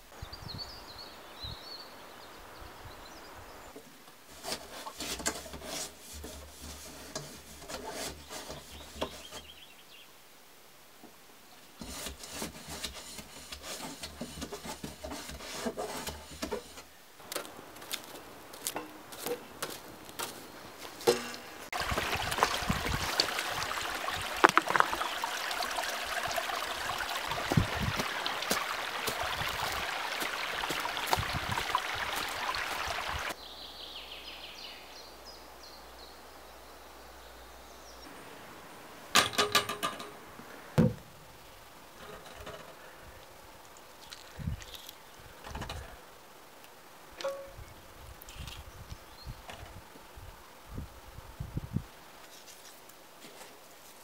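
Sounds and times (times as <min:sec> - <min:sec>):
handling knocks and scrapes: 0:04.3 - 0:09.5, 0:11.8 - 0:33.4, 0:42.0 - 0:43.0, 0:52.2 - 0:54.0
stream running over rocks: 0:17.2 - 0:33.4.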